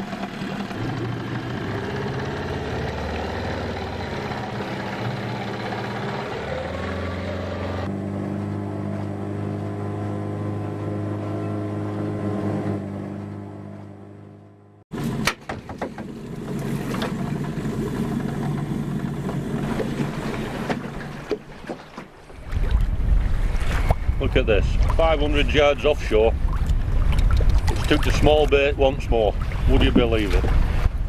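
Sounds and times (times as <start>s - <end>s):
outboard motor running: 0.0s - 31.0s
wind rumbling on microphone: 22.3s - 31.0s.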